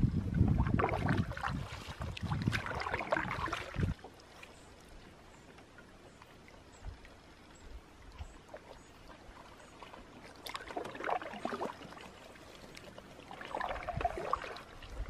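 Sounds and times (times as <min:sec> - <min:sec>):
water splashing and pouring: 0:00.0 - 0:04.0, 0:09.3 - 0:15.0.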